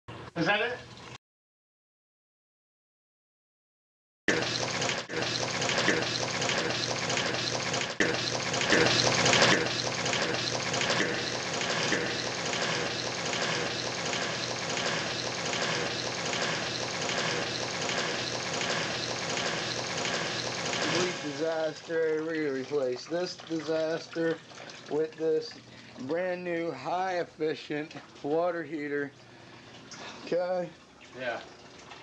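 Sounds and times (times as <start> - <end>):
water rushing with pulsing: 4.3 - 26.1.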